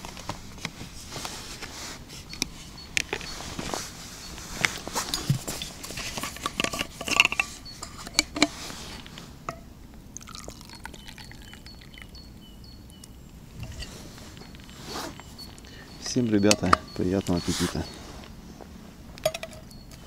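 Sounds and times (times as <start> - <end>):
liquid pouring into cup: 10.2 - 12.1.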